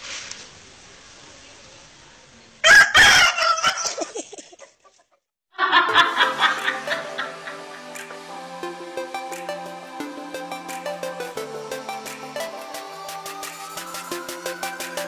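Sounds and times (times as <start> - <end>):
rooster crowing: 2.6 - 4.1
music: 5.6 - 15.0.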